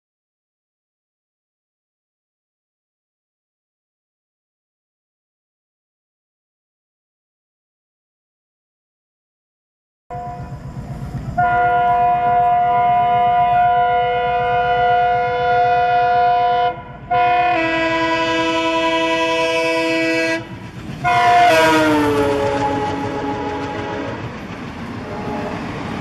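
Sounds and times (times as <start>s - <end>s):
locomotive air horn blasts: 10.1s - 10.7s, 11.4s - 24.3s, 25.0s - 25.7s
engine and wheel rumble: 10.1s - 15.5s, 18.8s - 26.0s.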